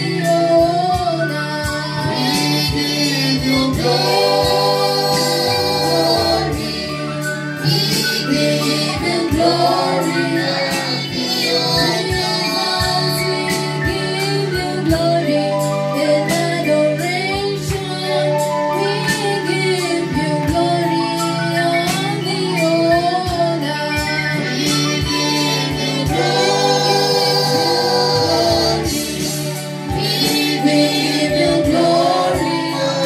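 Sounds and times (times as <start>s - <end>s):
instrumental backing with steady beat: 0.0s - 33.0s
women singing gospel: 0.0s - 33.0s.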